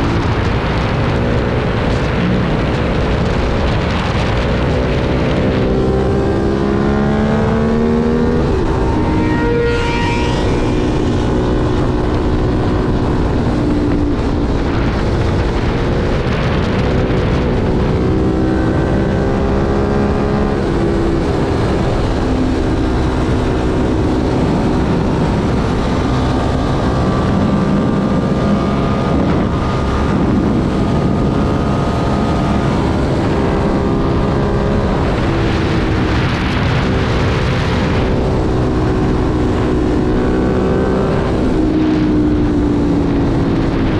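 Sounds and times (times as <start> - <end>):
motorcycle engine revving: 0.0 - 43.9
wind rush on microphone: 0.0 - 43.9.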